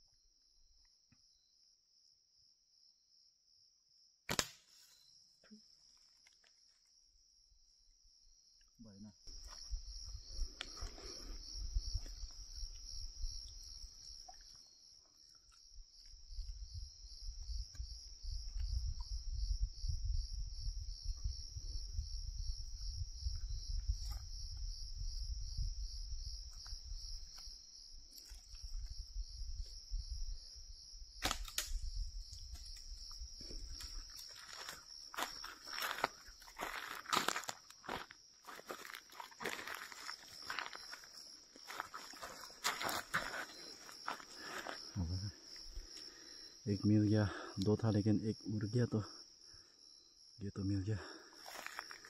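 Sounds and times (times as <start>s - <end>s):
crickets trilling: 0.0s - 52.0s
sharp click: 4.3s - 4.6s.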